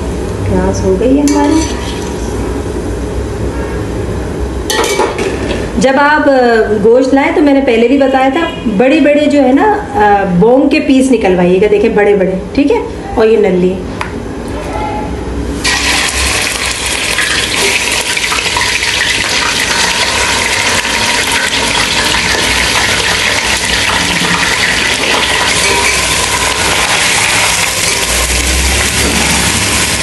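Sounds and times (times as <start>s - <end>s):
meat sizzling in hot oil: 15.6s - 30.0s.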